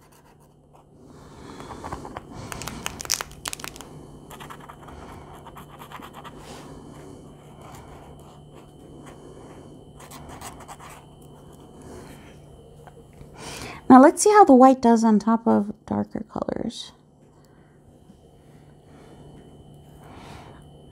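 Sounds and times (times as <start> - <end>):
marker nib scratching paper: 0.0 - 3.0, 3.6 - 9.2, 10.0 - 11.6.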